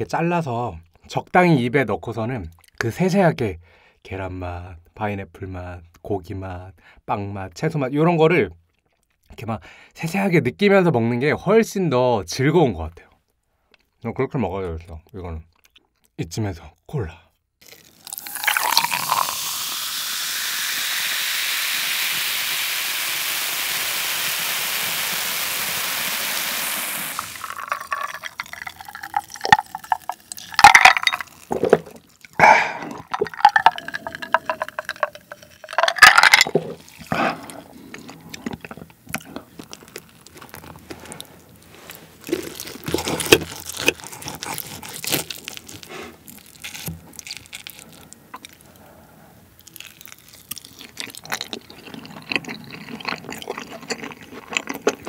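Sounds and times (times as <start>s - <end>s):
cola fizzing as poured: 17.6s - 37.2s
gulps of drinking: 17.7s - 19.8s, 31.6s - 35.8s.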